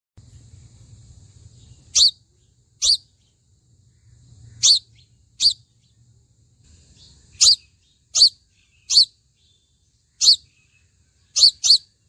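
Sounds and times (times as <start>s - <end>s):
bird chirping high-pitched: 1.6s - 3.4s, 4.4s - 6.0s, 6.9s - 12.0s.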